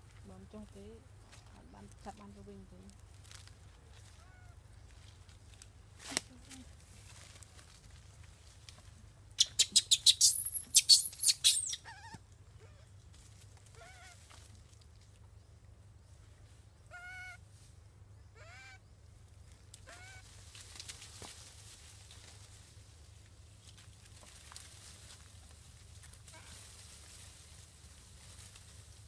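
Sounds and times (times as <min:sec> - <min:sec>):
animal shrieks and squeals: 0:09.5 - 0:12.9, 0:19.9 - 0:20.2.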